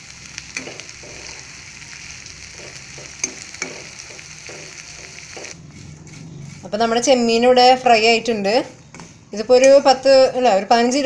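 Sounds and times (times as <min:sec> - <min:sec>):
prawns sizzling in oil: 0:00.0 - 0:06.7
spatula scraping and tapping pan: 0:00.5 - 0:01.5, 0:02.4 - 0:06.7.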